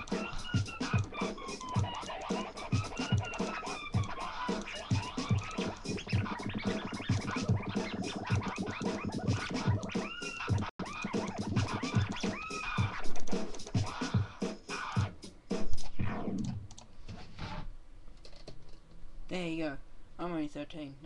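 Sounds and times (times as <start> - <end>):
electronic drum beat: 0.0 - 16.6
record scratching: 0.0 - 17.7.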